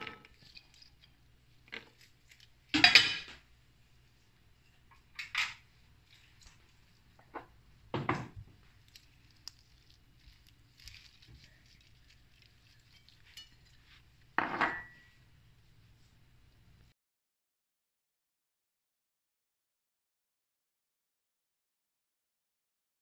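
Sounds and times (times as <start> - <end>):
cutlery and dishes clinking: 2.8 - 3.4, 12.7 - 13.8, 14.4 - 15.1.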